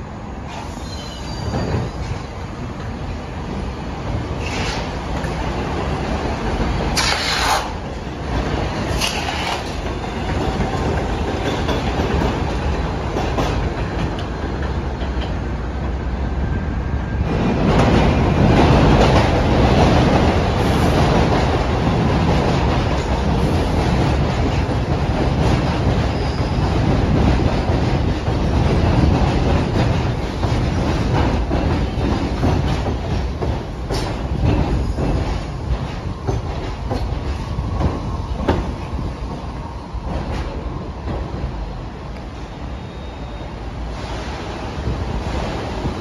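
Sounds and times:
subway train rumbling on elevated track: 0.0 - 46.0
high wheel squeals: 0.6 - 2.2, 42.4 - 43.7.

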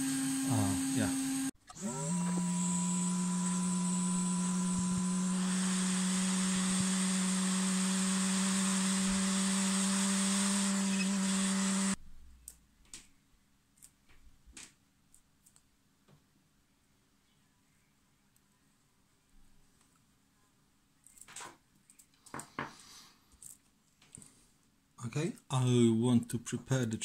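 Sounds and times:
hot air station blowing: 0.0 - 12.0.

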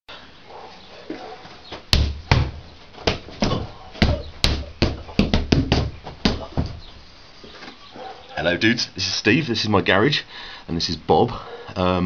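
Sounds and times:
punches thudding on striking dummy: 1.9 - 6.8.

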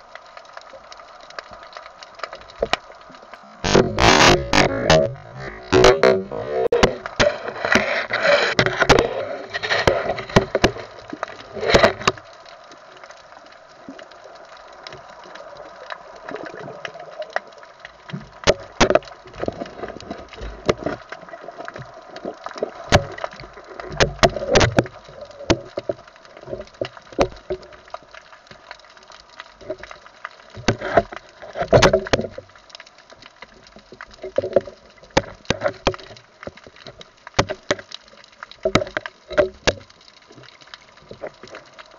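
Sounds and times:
rushing bubbly water noise: 0.0 - 32.6
underwater clicks and knocks: 0.5 - 13.3, 15.8 - 41.9.

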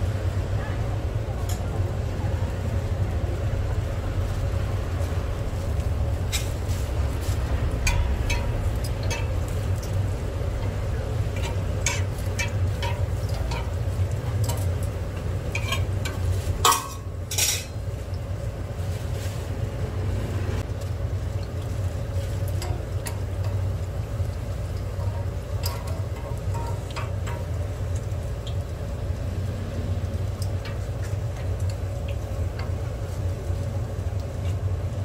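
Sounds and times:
dough sizzling in oil: 0.0 - 35.0
steady low hum: 0.0 - 35.0
metal press clinking on griddle: 11.4 - 14.7, 15.5 - 17.8, 25.0 - 27.5.

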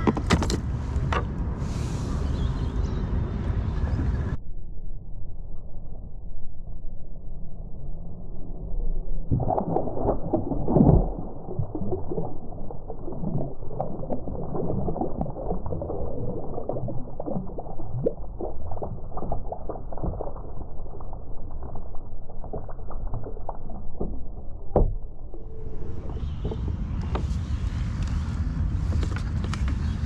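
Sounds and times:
muffled water splashing: 9.0 - 30.0.

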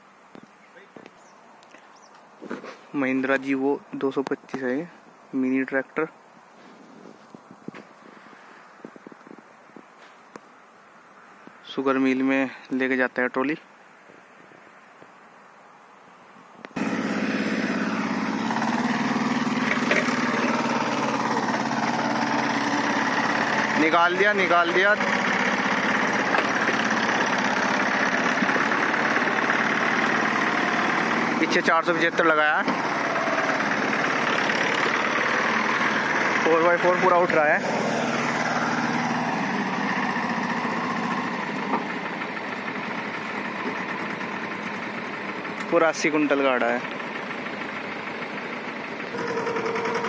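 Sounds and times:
tractor diesel engine under load: 16.8 - 50.0.

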